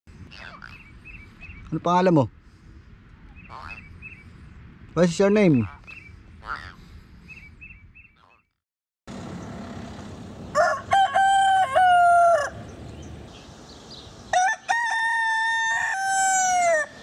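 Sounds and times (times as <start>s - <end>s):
rooster crowing: 10.5s - 12.7s, 14.3s - 17.0s.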